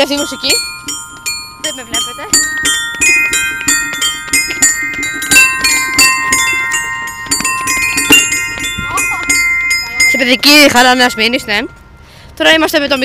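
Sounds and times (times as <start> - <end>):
bell-like chime melody: 0.0 - 13.0.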